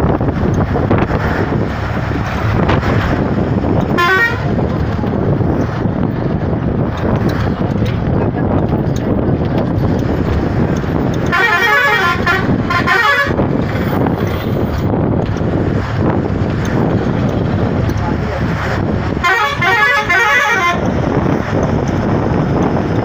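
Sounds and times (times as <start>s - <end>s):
road and engine rumble: 0.0s - 23.0s
vehicle horn: 3.9s - 4.5s, 11.3s - 13.4s, 19.2s - 20.9s.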